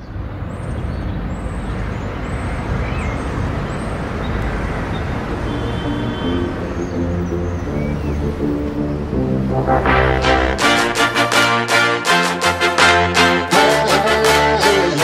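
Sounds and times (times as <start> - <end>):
rushing noise with deep rumble: 2.7 - 11.2
music with low held notes: 5.4 - 11.9.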